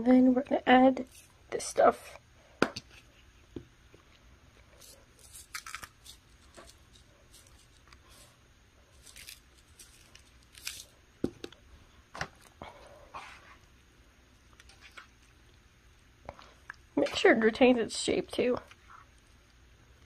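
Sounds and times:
seasoning shaker rasping: 1.0 - 1.4, 4.7 - 10.9.

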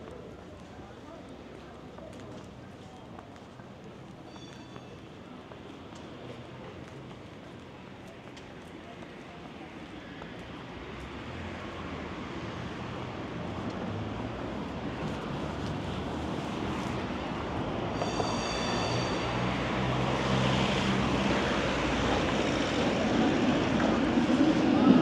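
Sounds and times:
tram running hum: 3.5 - 25.0
tram high-pitched squeal: 4.2 - 5.2, 17.4 - 25.0.

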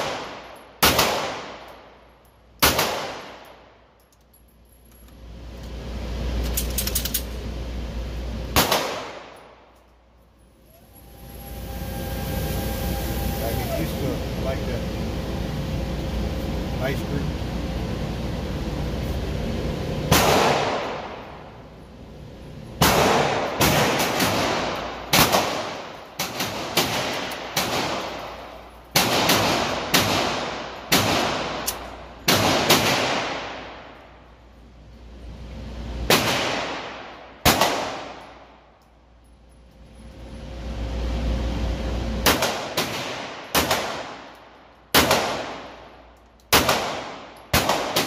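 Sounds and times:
pistol shots indoors: 0.0 - 2.0, 2.6 - 3.8, 8.5 - 9.6, 20.1 - 21.4, 22.8 - 28.3, 28.9 - 34.0, 36.0 - 38.9, 42.2 - 48.0.

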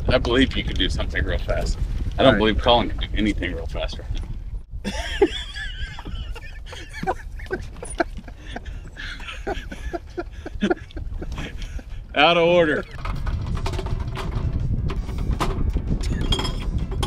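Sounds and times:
low rumble: 0.0 - 17.0
men laughing: 4.8 - 12.8.

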